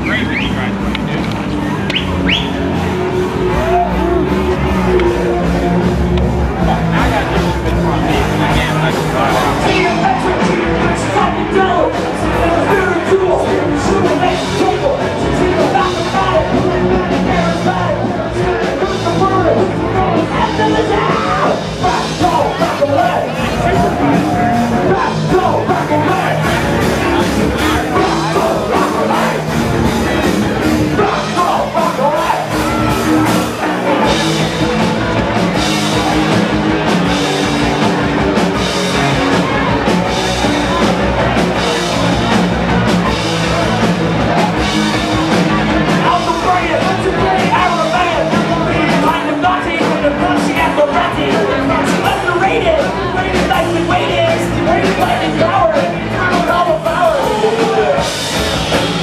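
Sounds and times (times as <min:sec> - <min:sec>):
drums and cymbals: 0:00.0 - 0:59.0
electric guitar: 0:00.0 - 0:59.0
person singing: 0:02.9 - 0:35.2, 0:45.3 - 0:58.3.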